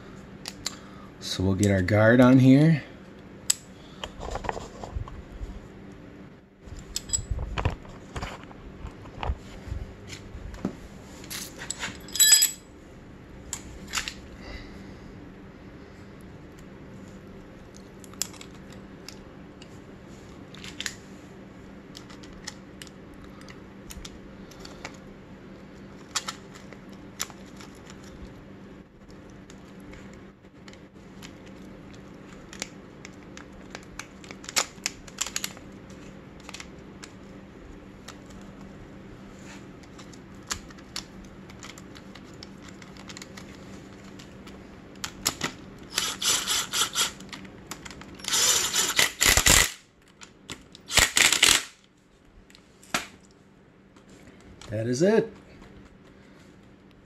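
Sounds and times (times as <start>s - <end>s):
steady low hum: 0.0s - 57.0s
socket ratchet clicking: 45.9s - 47.2s.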